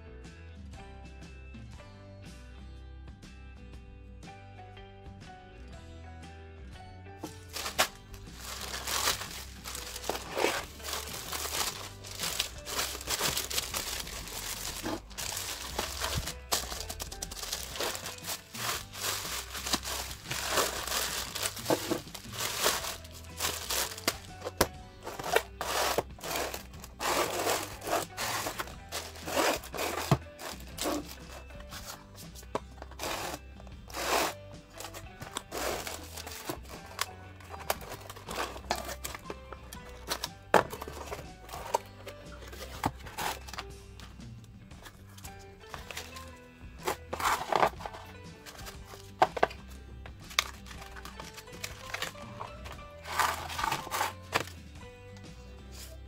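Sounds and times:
background music: 0.0s - 56.0s
plastic mailer bag crinkling and tearing: 7.4s - 31.9s, 33.0s - 39.3s, 45.8s - 49.5s, 50.3s - 54.5s
cardboard boxes sliding: 7.4s - 32.0s, 32.8s - 39.2s, 46.8s - 49.1s, 51.9s - 54.5s.

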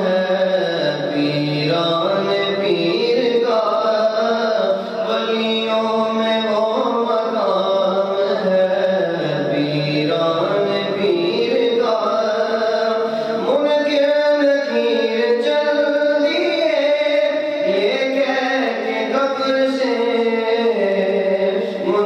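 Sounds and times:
man singing into a microphone: 0.0s - 22.0s.

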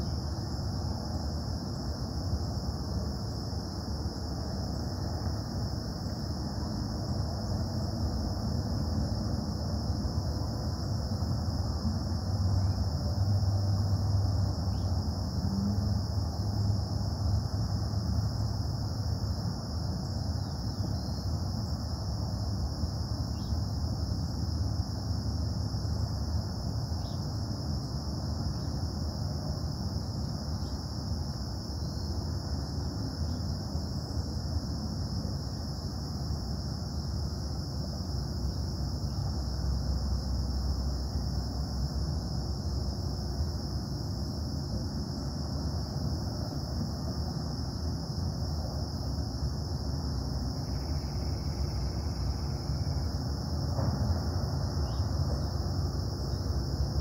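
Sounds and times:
crickets droning: 0.0s - 57.0s
distant industrial hum: 50.2s - 57.0s.

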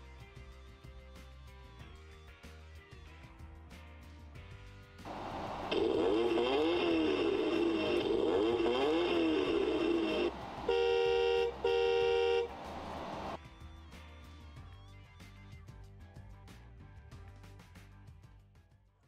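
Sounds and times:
toy horn tooting: 5.1s - 12.6s
recorded toy engine revving: 5.1s - 13.4s.

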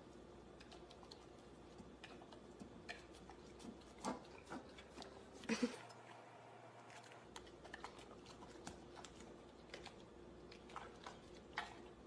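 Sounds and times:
dog licking at a plate: 0.1s - 5.4s, 6.9s - 12.0s.

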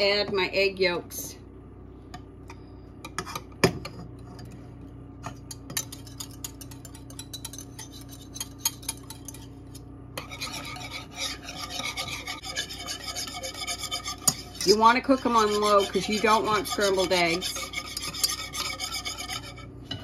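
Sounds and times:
whisk scraping a metal saucepan: 5.3s - 20.0s.

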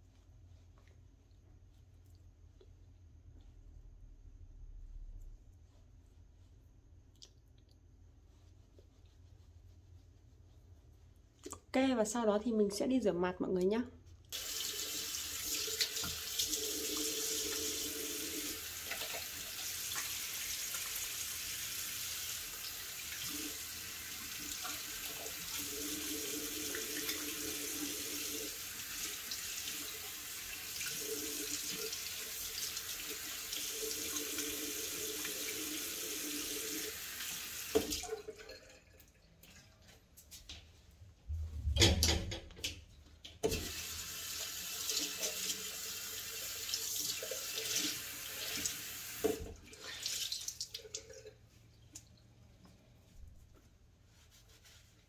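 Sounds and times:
tap water running into sink: 14.4s - 21.6s, 22.2s - 39.2s, 43.4s - 51.4s.

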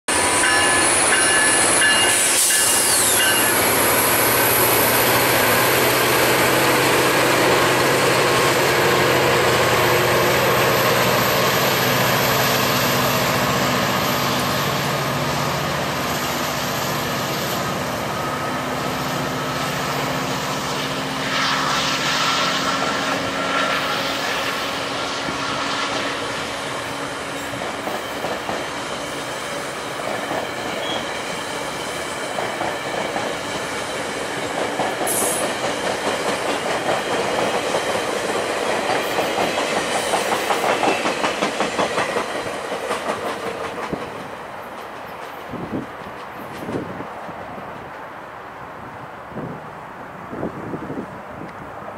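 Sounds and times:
train wheels rolling over rails: 0.1s - 49.6s
diesel locomotive engine: 0.1s - 51.9s
wheel squeal: 0.4s - 4.7s.

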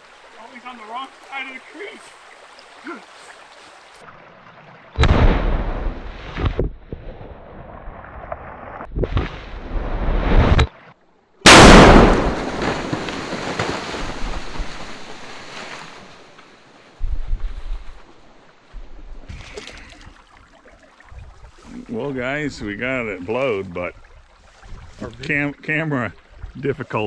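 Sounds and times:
explosion blasts: 5.0s - 6.5s, 11.4s - 14.6s
rumble of explosion: 5.0s - 8.0s, 11.5s - 13.0s.

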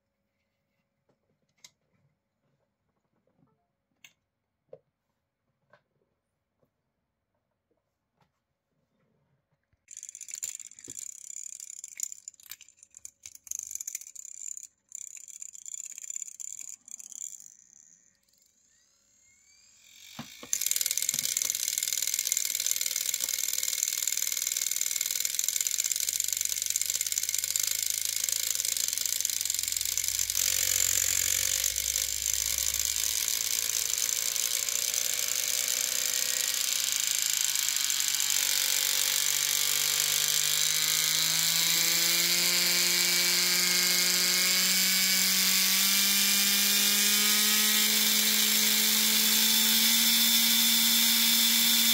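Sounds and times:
scattered clicks: 9.9s - 17.6s, 20.3s - 51.9s
motor whir with rising whine: 15.6s - 51.9s.

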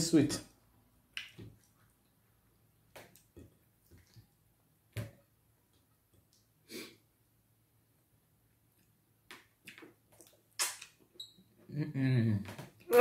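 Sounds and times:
mouth smack: 9.4s - 11.0s.

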